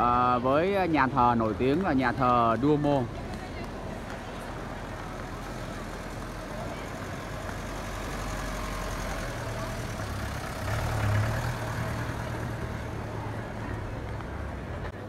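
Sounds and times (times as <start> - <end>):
vehicle engine driving past: 5.4 - 14.7.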